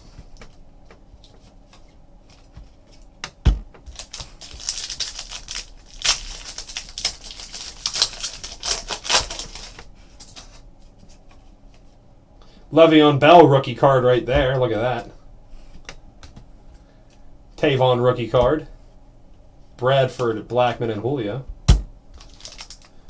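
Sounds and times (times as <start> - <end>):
foil wrapper tearing and crinkling: 3.9 - 10.6, 22.2 - 23.0.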